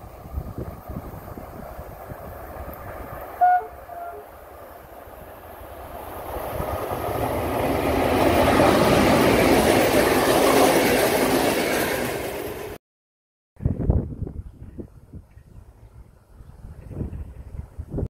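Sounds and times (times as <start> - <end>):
train wheels rushing on rail: 0.0 - 12.8
train horn blast: 3.4 - 4.4.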